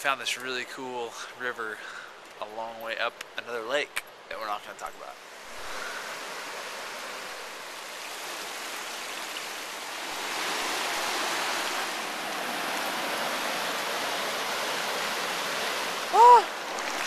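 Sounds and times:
river water rushing over rocks: 5.3 - 17.0.

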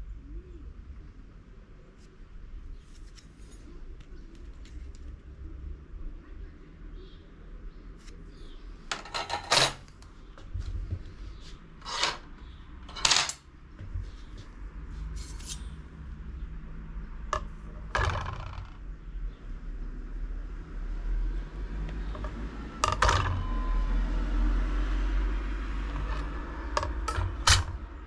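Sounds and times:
metal brake rotors clinking: 22.2 - 23.5, 25.9 - 27.8.

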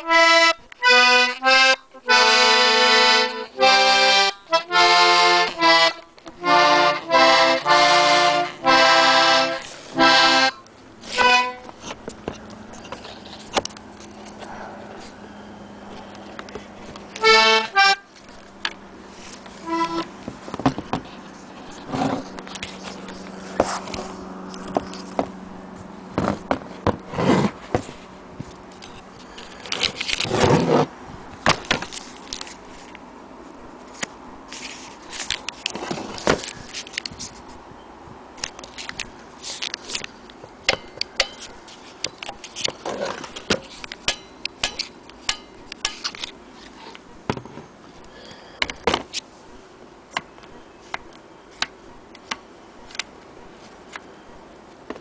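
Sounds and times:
accordion parts clicking and knocking: 0.0 - 14.4, 15.9 - 25.4, 26.1 - 30.6, 38.4 - 47.8, 48.6 - 49.2.

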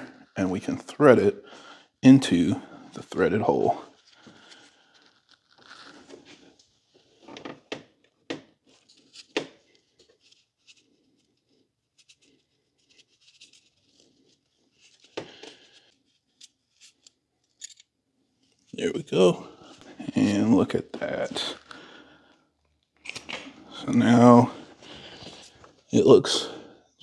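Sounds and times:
hand tool clicks and scrapes: 16.4 - 17.9.

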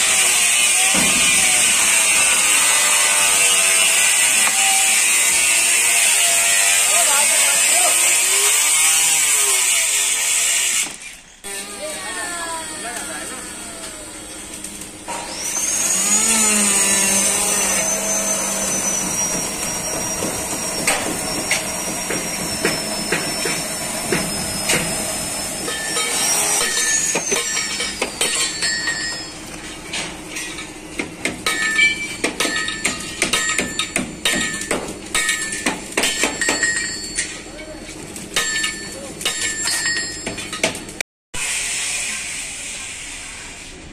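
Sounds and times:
electric power tool whining: 0.0 - 28.2.

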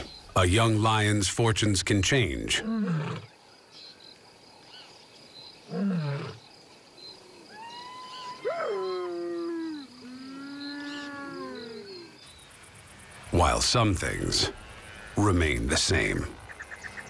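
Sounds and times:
wild animal calls: 2.6 - 3.4, 5.6 - 6.5, 7.1 - 12.4.

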